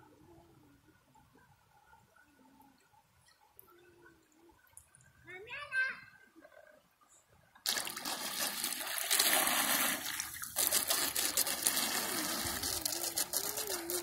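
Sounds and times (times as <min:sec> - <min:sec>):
propeller churning water: 0:07.6 - 0:14.0.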